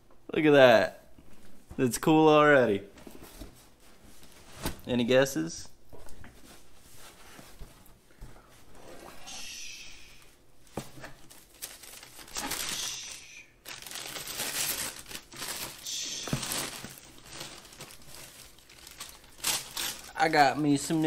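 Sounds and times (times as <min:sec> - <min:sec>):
packing paper rustling: 0:10.6 - 0:21.0.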